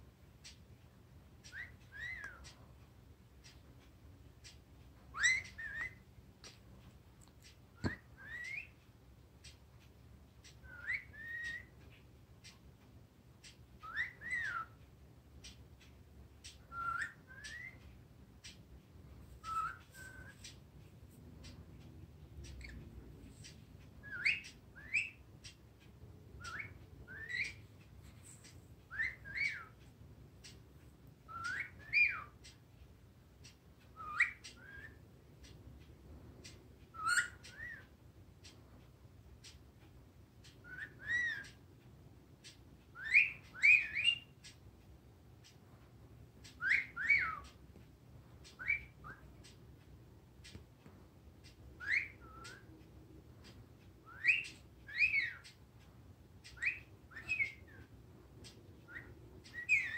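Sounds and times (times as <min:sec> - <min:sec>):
parrot whistling: 0:01.5 - 0:02.4, 0:05.1 - 0:06.0, 0:07.8 - 0:08.8, 0:10.6 - 0:11.7, 0:13.8 - 0:14.8, 0:16.5 - 0:17.8, 0:19.4 - 0:20.6, 0:24.0 - 0:25.2, 0:26.4 - 0:27.6, 0:28.9 - 0:29.8, 0:31.3 - 0:32.4, 0:33.9 - 0:35.0, 0:36.9 - 0:37.9, 0:40.6 - 0:41.6, 0:42.9 - 0:44.4, 0:46.5 - 0:47.6, 0:48.5 - 0:49.4, 0:51.8 - 0:52.7, 0:54.0 - 0:55.6, 0:56.4 - 0:57.8, 0:58.9 - 0:59.9.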